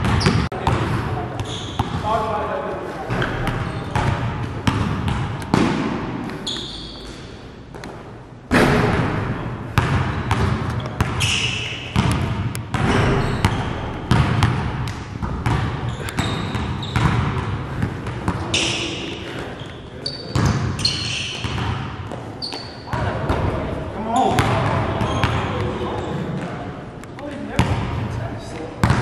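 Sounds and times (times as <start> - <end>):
basketballs bouncing on gym floor: 0.0 - 2.4, 3.1 - 26.5, 27.2 - 28.2, 28.8 - 29.0
short high squeaks: 6.4 - 7.1, 19.6 - 21.4.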